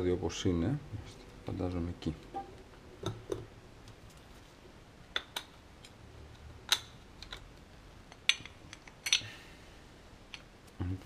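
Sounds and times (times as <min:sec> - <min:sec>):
metal parts clicking and clinking: 0:08.1 - 0:09.3.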